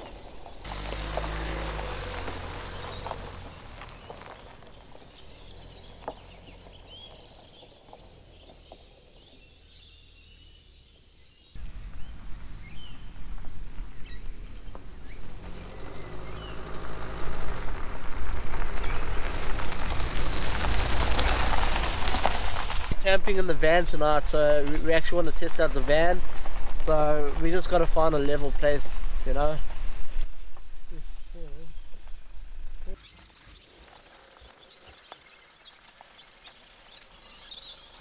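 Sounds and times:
small birds chirping: 0.0 - 18.0, 18.7 - 19.8, 30.1 - 38.0
low rumble and rushing: 11.6 - 33.0.

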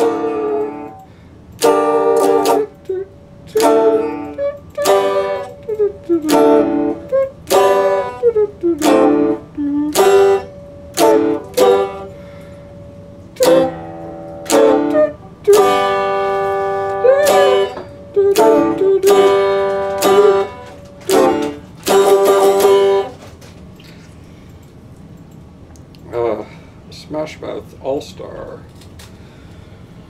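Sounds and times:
electric guitar chords strummed: 0.0 - 23.5.

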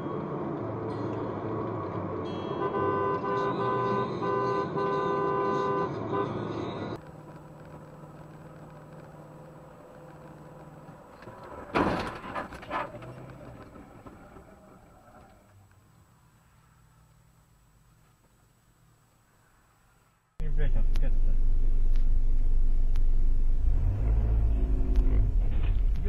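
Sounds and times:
road noise: 0.0 - 26.0
car horn honking: 2.4 - 7.0.

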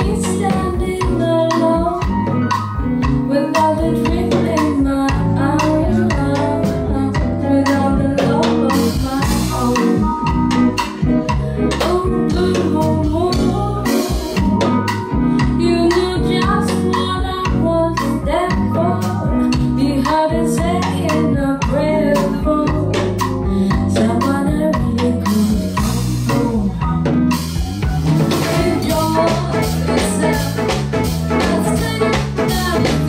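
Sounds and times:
woman singing into microphone: 0.0 - 2.5, 3.3 - 10.4, 11.5 - 14.7, 15.3 - 27.5, 28.3 - 33.0
live band playing: 0.0 - 33.0.

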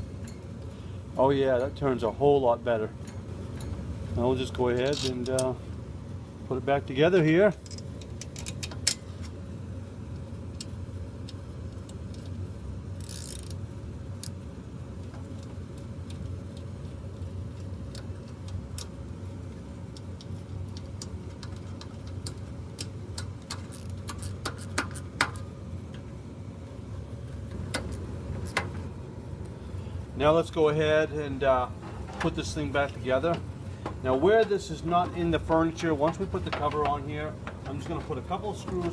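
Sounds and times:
steady low hum: 0.0 - 38.9
small metallic clicks and ticks: 3.0 - 3.8, 4.7 - 5.6, 7.3 - 9.4, 10.1 - 12.4, 13.0 - 13.6, 14.2 - 14.4, 15.0 - 19.0, 19.9 - 26.1.

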